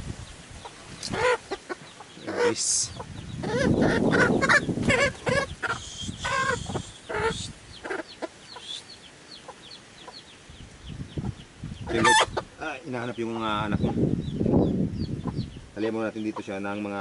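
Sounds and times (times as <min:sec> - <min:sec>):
chicks peeping: 0:00.1 - 0:17.0
hen clucking and squawking: 0:00.6 - 0:13.0, 0:15.0 - 0:16.6.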